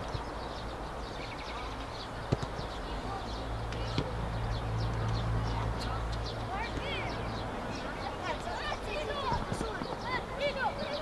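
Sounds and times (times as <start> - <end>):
football kick thud: 2.3 - 2.6.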